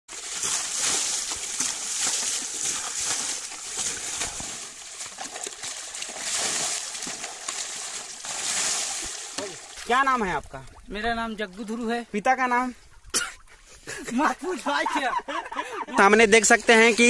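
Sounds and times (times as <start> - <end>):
water splashing over motorcycle: 0.1 - 10.6
water sloshing from wading: 0.1 - 13.8.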